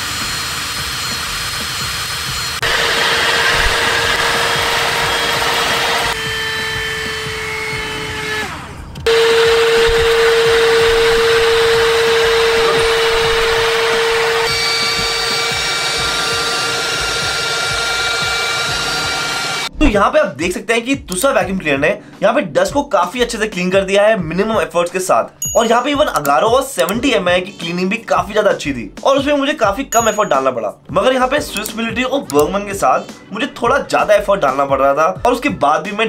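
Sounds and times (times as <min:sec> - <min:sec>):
cordless vacuum cleaner motor whine: 0:00.0 - 0:19.7.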